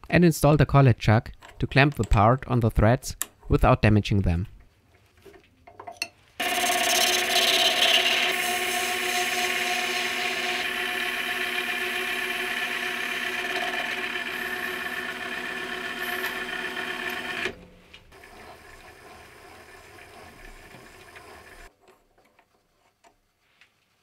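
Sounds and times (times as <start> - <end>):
power machine cutting brass: 6.4 - 17.6.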